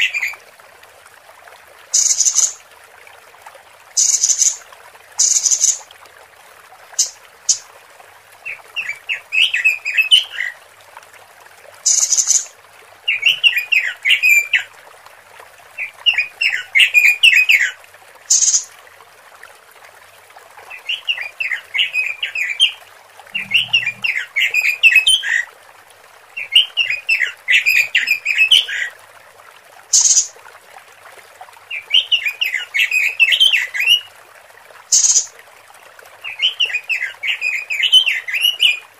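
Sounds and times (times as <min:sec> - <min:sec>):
bird fast chattering calls: 0:02.0 - 0:02.6, 0:04.0 - 0:04.6, 0:05.2 - 0:05.8, 0:11.9 - 0:12.5, 0:18.3 - 0:18.7, 0:30.0 - 0:30.3, 0:34.9 - 0:35.3.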